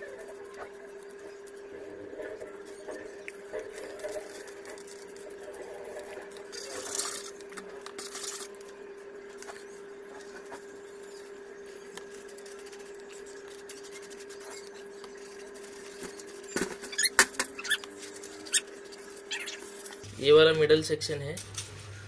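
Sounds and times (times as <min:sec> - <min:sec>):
hand scratching foam: 0:00.0 - 0:02.4
foam squeaking under hand: 0:12.3 - 0:20.0.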